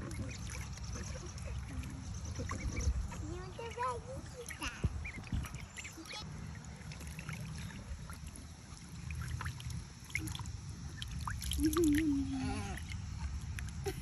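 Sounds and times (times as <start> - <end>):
duckling peeps: 0.0 - 3.2, 4.4 - 6.2
water sloshing and trickling: 0.0 - 14.0.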